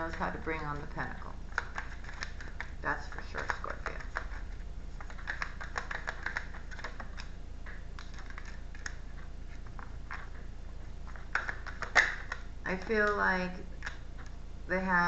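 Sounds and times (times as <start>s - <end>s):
low electrical hum: 0.0s - 15.0s
cards being shuffled: 1.5s - 13.2s.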